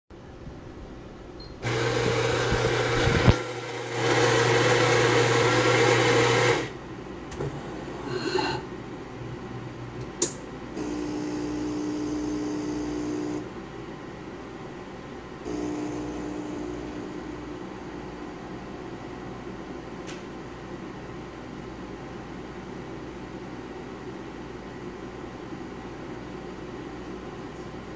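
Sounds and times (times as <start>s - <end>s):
coffee grinder running: 1.6s - 6.8s, 10.8s - 13.5s, 15.5s - 17.6s
water pump humming: 1.6s - 8.4s, 10.0s - 13.6s, 15.4s - 19.2s
brew unit clunks and click: 7.3s - 7.6s.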